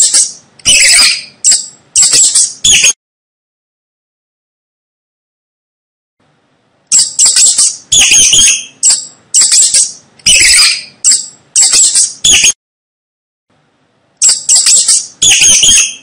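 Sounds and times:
mice squeaking: 0.0 - 3.0, 6.9 - 12.6, 14.2 - 16.0.

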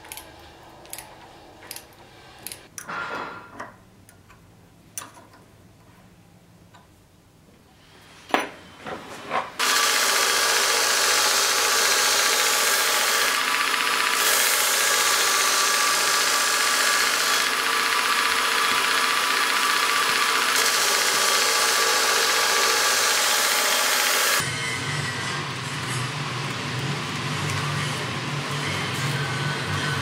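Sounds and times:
grinder wheel grinding steel: 9.6 - 30.0.

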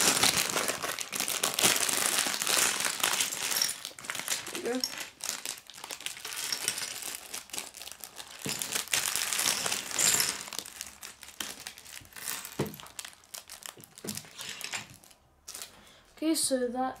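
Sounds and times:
plastic bag crinkling: 0.0 - 16.1
plastic pieces dropping on wooden table: 8.4 - 10.8, 12.2 - 13.0.

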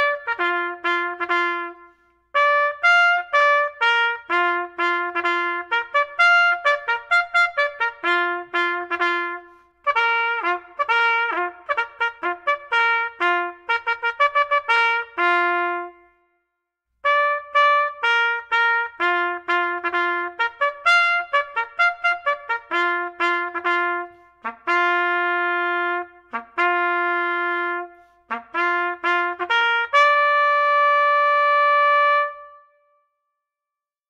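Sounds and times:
solo trumpet-like melody: 0.0 - 16.4, 17.0 - 33.1.

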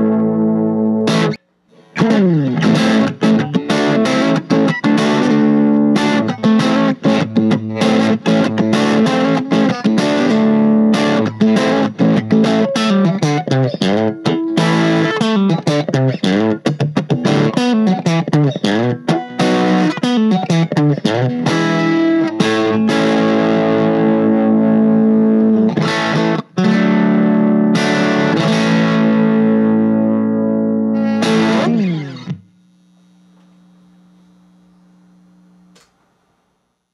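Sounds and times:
electric guitar playing: 0.0 - 32.5
faint low amplifier tone: 31.7 - 36.9.

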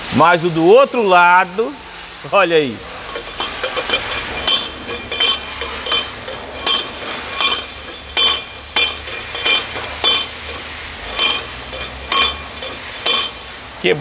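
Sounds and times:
shock absorber metallic clinks: 3.0 - 13.5.

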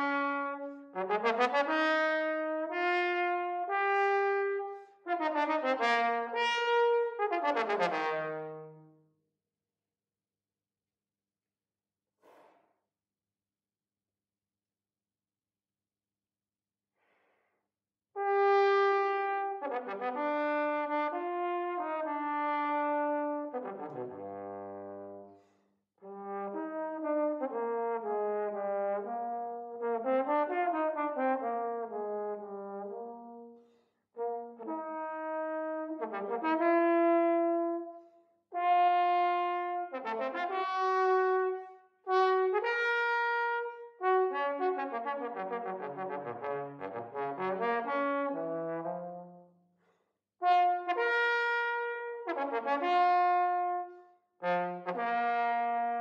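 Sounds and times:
trombone playing: 0.0 - 8.7, 18.2 - 25.2, 26.2 - 33.5, 34.2 - 37.8, 38.6 - 49.3, 50.4 - 56.0
player breathing: 17.0 - 17.6.

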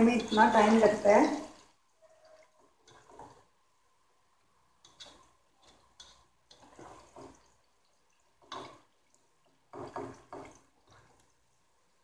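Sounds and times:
spatula scraping frying onions: 0.0 - 3.6, 4.8 - 9.0.

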